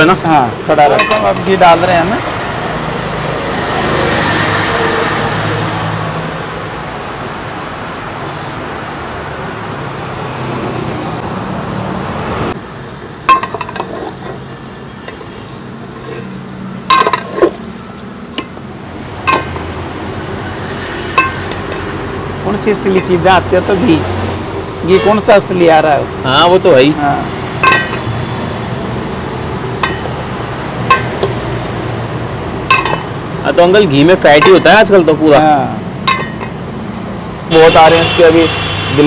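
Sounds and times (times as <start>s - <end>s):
steel ladle clinking on pot: 0.9s - 1.5s, 16.9s - 17.5s, 19.3s - 19.7s, 21.2s - 21.9s, 27.6s - 28.1s, 29.8s - 30.1s, 30.9s - 31.3s, 32.7s - 33.1s, 36.1s - 36.6s.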